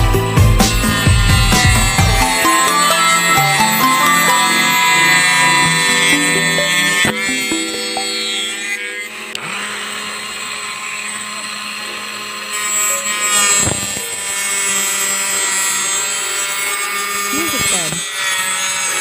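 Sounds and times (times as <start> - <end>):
saw disc cutting wood: 0.0 - 19.0
small motor whining: 0.0 - 19.0.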